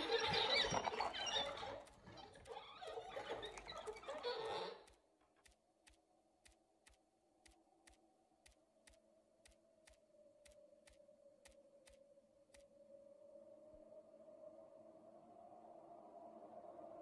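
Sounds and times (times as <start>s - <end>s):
faint footstep clicks: 4.4s - 12.7s.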